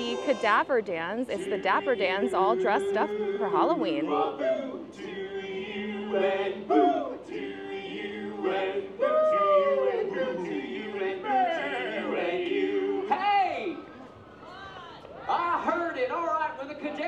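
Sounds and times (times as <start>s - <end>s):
men singing in close harmony: 1.3s - 13.8s.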